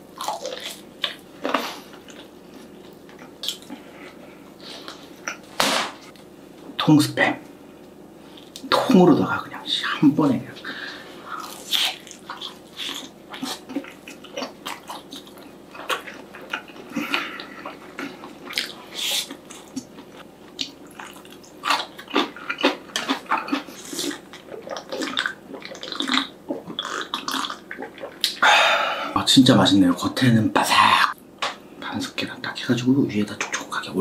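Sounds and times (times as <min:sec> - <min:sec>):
crunchy bites and wet chewing: 0:00.2 - 0:03.7, 0:11.3 - 0:28.4
mouth clicks and smacks: 0:20.6 - 0:28.4.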